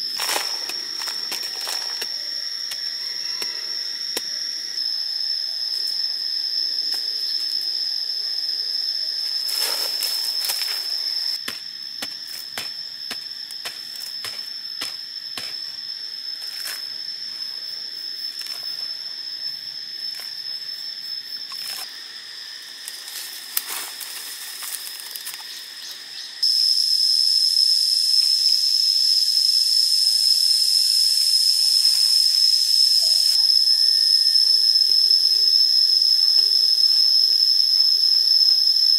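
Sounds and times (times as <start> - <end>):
insects droning: 0.0 - 38.9
stick digging into earth: 11.4 - 15.6.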